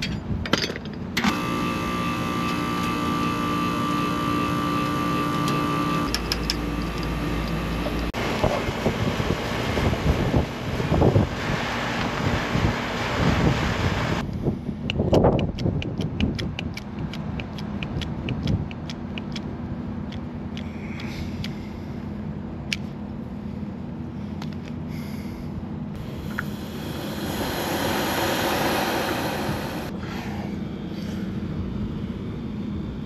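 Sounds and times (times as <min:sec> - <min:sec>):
low steady hum: 0:16.9 - 0:33.0
loud rushing hiss: 0:26.0 - 0:30.0.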